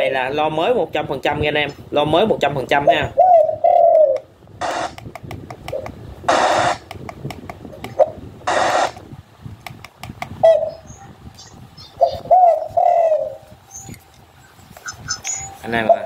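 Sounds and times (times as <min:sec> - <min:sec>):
low cooing bird calls on loudspeaker: 0:02.8 - 0:04.9, 0:10.4 - 0:11.2, 0:11.8 - 0:13.5, 0:14.9 - 0:16.0.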